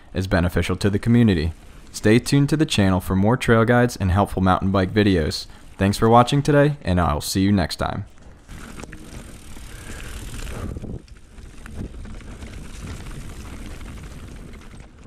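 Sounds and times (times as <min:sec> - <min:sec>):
bike tyres rumbling on dirt: 0:00.3 - 0:03.0, 0:08.2 - 0:15.0
bike rattling and clicking: 0:00.6 - 0:02.0, 0:08.2 - 0:15.0.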